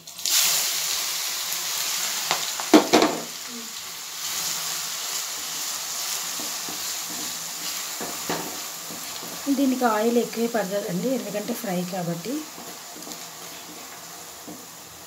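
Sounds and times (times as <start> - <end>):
onions sizzling in hot oil: 0.0 - 15.0
knocks on pot: 2.7 - 3.3.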